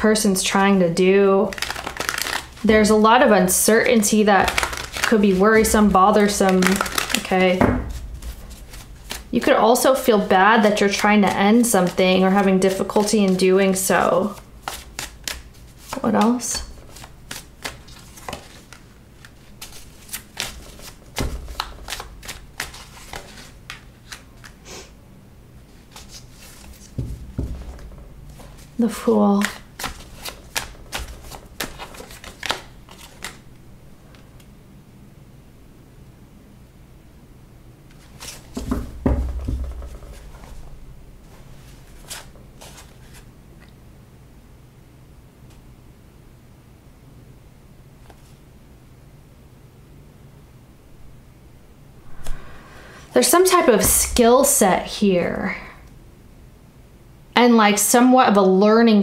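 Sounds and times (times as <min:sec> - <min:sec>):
cards being shuffled: 0:01.5 - 0:24.6, 0:25.8 - 0:33.5, 0:37.9 - 0:43.3
cards tapping on a table: 0:26.9 - 0:28.6.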